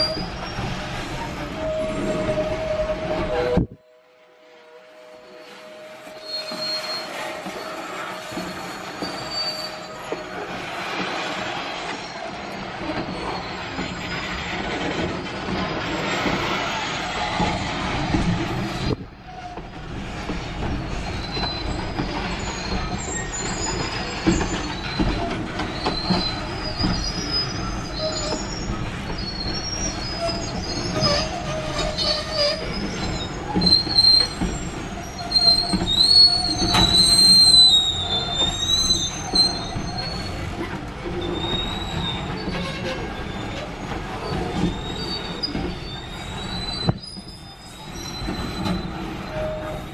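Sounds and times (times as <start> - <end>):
high wavering wheel squeal: 5.0 - 17.8, 20.6 - 49.9
steel wheels clattering on rail: 6.1 - 49.9.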